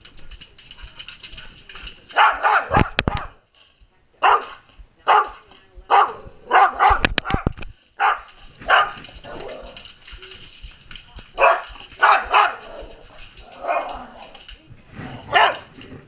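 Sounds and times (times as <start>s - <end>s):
dog barking: 2.1s - 3.4s, 4.2s - 9.6s, 11.4s - 13.0s, 15.2s - 15.8s.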